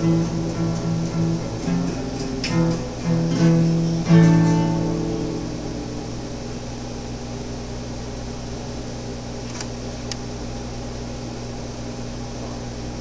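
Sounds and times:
low hum: 0:00.0 - 0:09.4.

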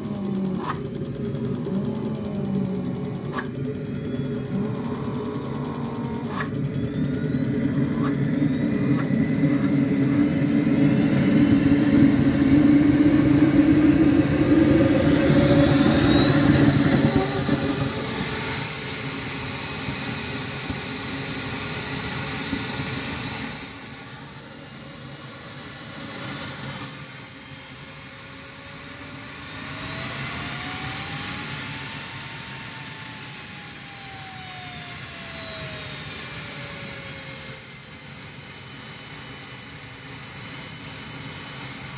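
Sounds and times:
jet turbine whine: 0:00.0 - 0:41.9
low rumble of turbine lighting: 0:00.0 - 0:41.9
sharp click: 0:00.1 - 0:03.8, 0:06.2 - 0:06.6.

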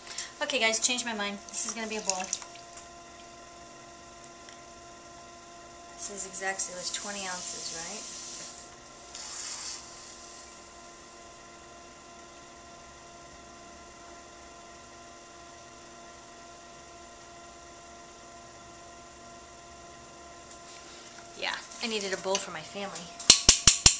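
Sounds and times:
pottery wheel motor hum: 0:00.0 - 0:23.9
brief hisses: 0:09.2 - 0:09.9.

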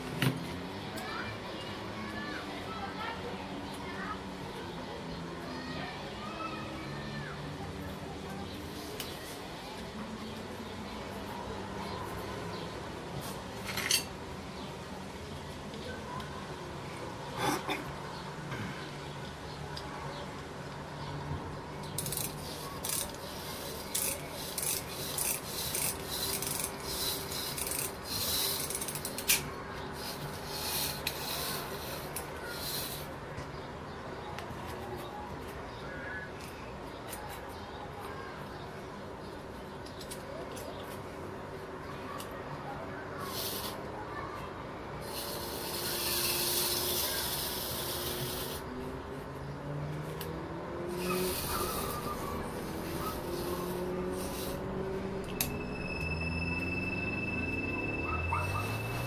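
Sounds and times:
rubbing and scraping on metal spring: 0:21.8 - 0:33.2, 0:43.2 - 0:43.9, 0:45.0 - 0:48.8, 0:50.8 - 0:56.1
steady hiss: 0:45.0 - 0:48.6.

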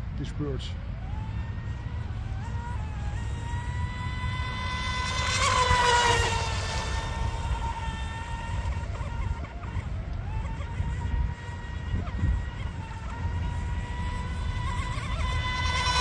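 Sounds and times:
rc boat motor whine: 0:00.0 - 0:16.0.

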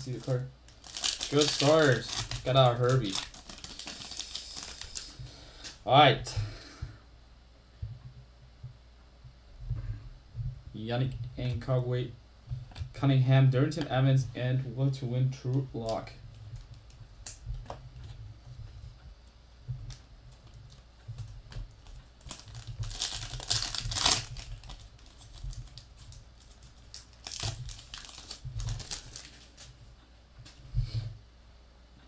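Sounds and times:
foil wrapper crinkling and tearing: 0:00.0 - 0:05.8, 0:21.2 - 0:29.8.

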